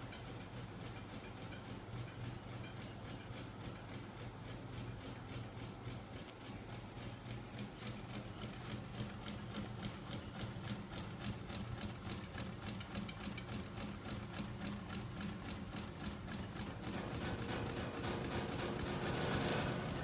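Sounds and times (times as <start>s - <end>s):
rotating mechanism clicking: 0.1s - 20.0s.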